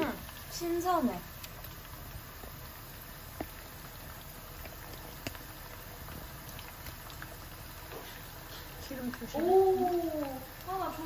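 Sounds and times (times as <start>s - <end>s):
oil sizzling in a wok: 0.0s - 11.0s
small oil pops: 1.4s - 1.8s, 3.3s - 3.8s, 4.6s - 5.5s.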